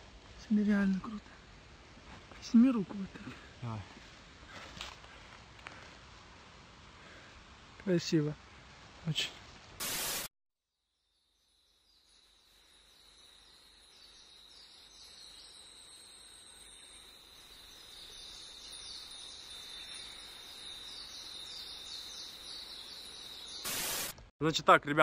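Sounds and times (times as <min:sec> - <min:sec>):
high-pitched insect trill: 0:11.0 - 0:24.1.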